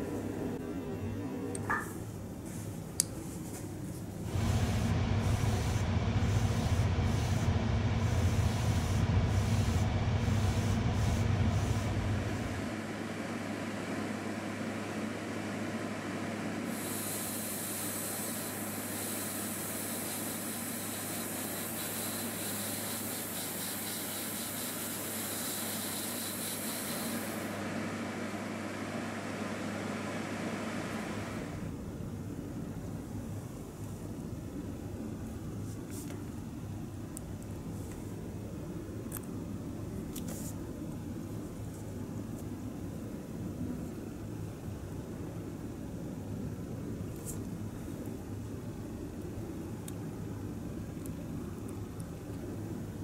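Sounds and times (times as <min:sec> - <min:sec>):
steady low hum: 0:00.0 - 0:53.0
airbrush hissing: 0:16.7 - 0:27.5.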